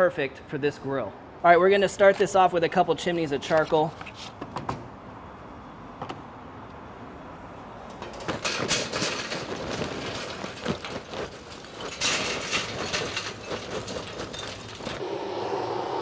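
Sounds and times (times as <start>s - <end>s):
charcoal clattering into metal: 8.0s - 15.0s.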